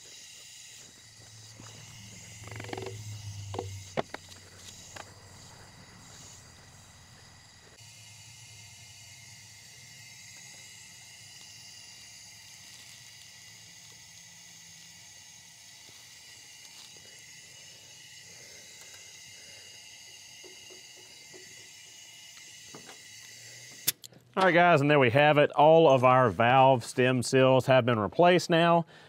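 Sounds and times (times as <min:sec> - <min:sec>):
high-pitched hiss: 0:00.0 - 0:24.8.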